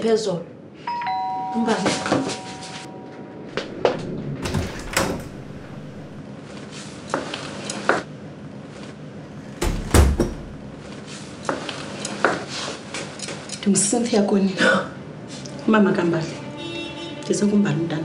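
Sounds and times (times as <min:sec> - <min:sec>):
door shutting with heavy thud: 0:04.4 - 0:06.2, 0:09.3 - 0:10.8
wooden door opening: 0:04.4 - 0:06.2, 0:09.3 - 0:10.8.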